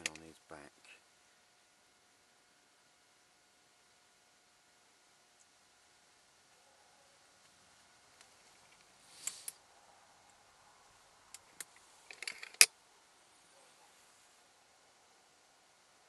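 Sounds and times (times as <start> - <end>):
air rifle clicks and rattles: 11.4 - 12.7.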